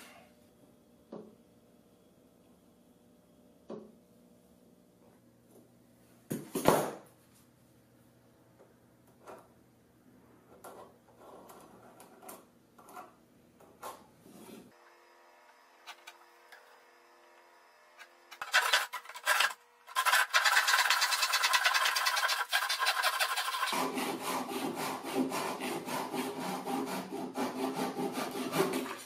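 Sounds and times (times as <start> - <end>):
hand saw cutting plywood: 18.0 - 29.0
pencil scratching along metal: 18.4 - 29.0.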